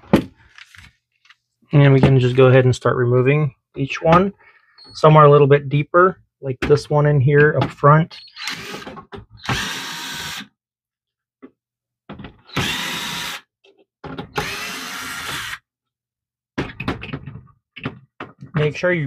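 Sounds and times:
electric screwdriver whirring: 0:08.2 - 0:10.5, 0:12.5 - 0:13.4, 0:14.4 - 0:15.6.

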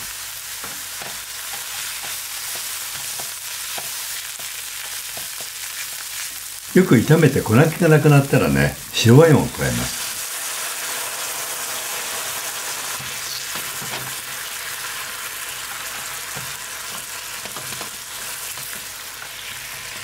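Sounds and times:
wine sizzling in frying pan: 0:00.0 - 0:20.0
spatula stirring and scraping: 0:00.6 - 0:06.6, 0:12.9 - 0:19.7.

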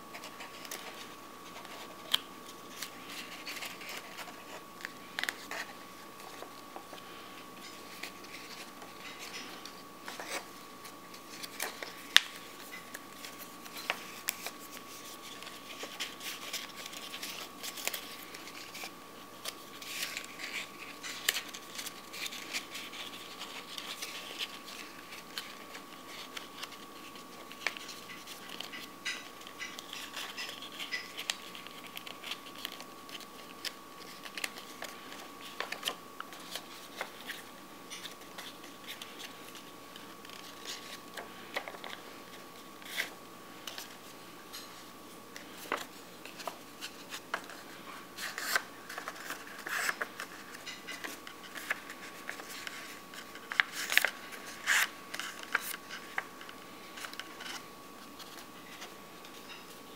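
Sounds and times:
paper rustling and crackling: 0:00.0 - 0:59.9.

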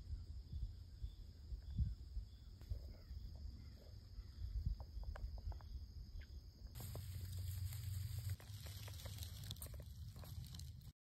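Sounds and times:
wind rumble on microphone: 0:00.0 - 0:03.1
high-pitched insect hum: 0:00.0 - 0:10.9
crackles and rustles in dry leaves: 0:06.7 - 0:11.0.

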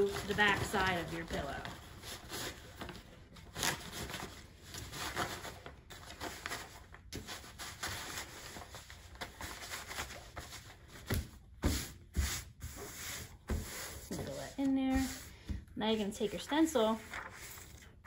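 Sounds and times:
paper and pillowcase rustling: 0:00.0 - 0:10.8, 0:13.6 - 0:15.3.

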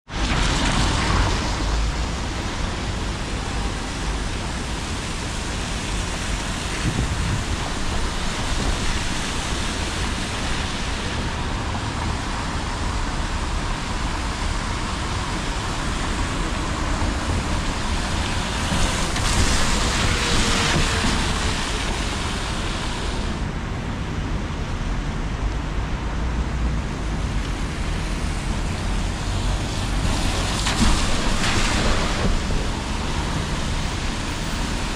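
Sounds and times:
low traffic rumble: 0:00.1 - 0:34.9
tyres hissing on wet road: 0:00.1 - 0:34.9.

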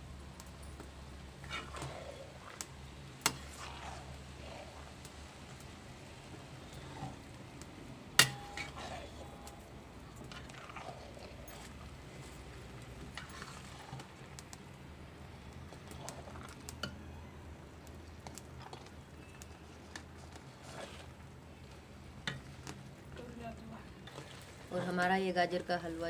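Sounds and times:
metal spatula scraping iron pan: 0:08.2 - 0:09.4.

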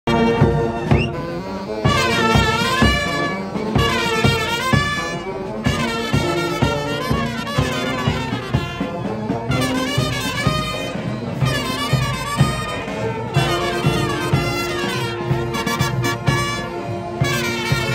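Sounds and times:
marching brass band playing: 0:00.0 - 0:17.9
bass drum beat: 0:00.1 - 0:01.3, 0:01.9 - 0:10.8.

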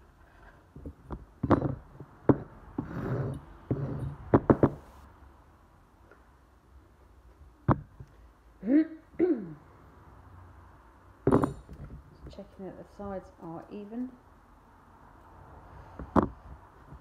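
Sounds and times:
tools knocking on table: 0:00.8 - 0:02.5, 0:03.2 - 0:04.8, 0:11.3 - 0:12.0.

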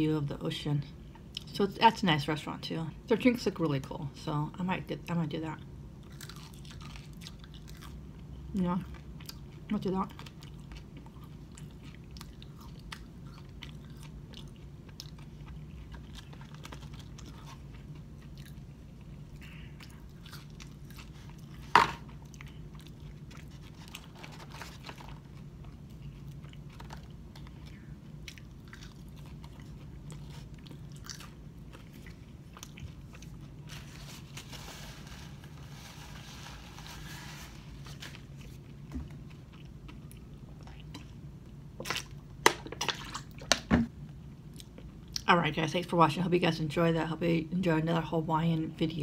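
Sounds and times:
low room hum: 0:00.0 - 0:49.0
crunchy chewing: 0:06.0 - 0:08.3, 0:08.9 - 0:34.9.

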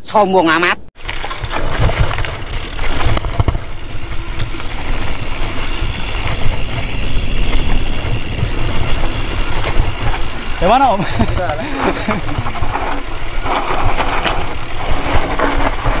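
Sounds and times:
bike knocking and rattling: 0:01.0 - 0:16.0
tyres rolling over dirt: 0:01.0 - 0:16.0
wind on microphone: 0:03.4 - 0:16.0.

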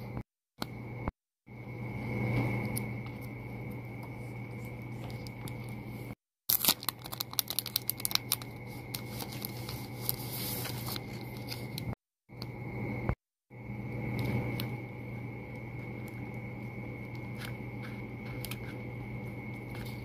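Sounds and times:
background hum: 0:00.0 - 0:20.0
faint high whine: 0:00.0 - 0:20.0
plastic film crackling: 0:06.5 - 0:11.9.

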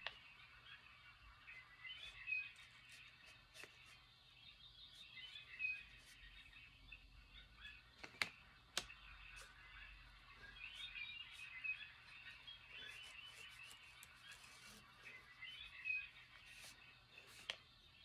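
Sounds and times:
faint high chirps: 0:00.0 - 0:08.0.

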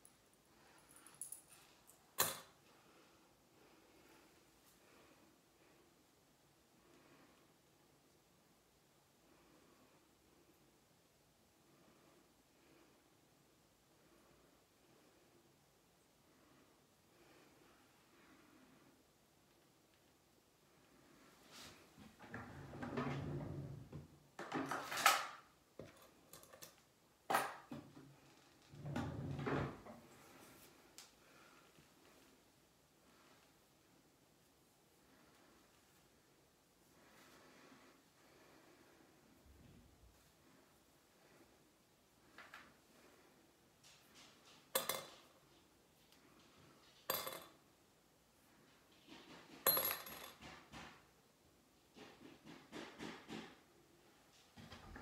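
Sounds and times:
rustling and light clattering: 0:42.2 - 0:47.7, 0:48.5 - 0:51.2, 0:51.8 - 0:55.0.

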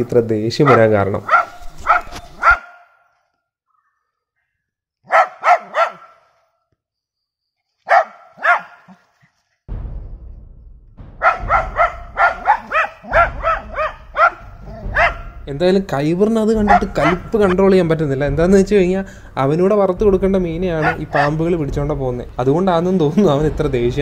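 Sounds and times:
dog barking angrily: 0:00.6 - 0:03.0, 0:05.0 - 0:06.4, 0:07.8 - 0:09.0, 0:11.2 - 0:15.4, 0:16.6 - 0:17.6, 0:20.8 - 0:21.4
low background rumble: 0:09.7 - 0:24.0.

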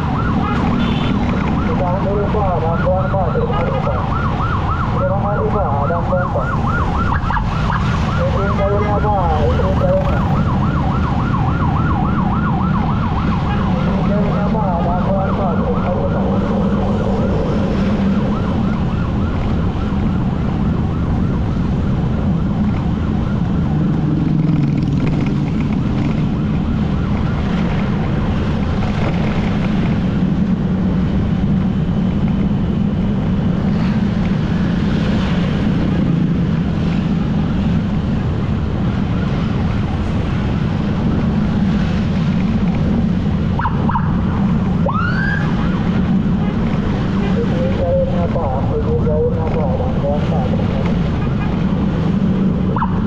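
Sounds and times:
emergency siren: 0:00.0 - 0:53.0.

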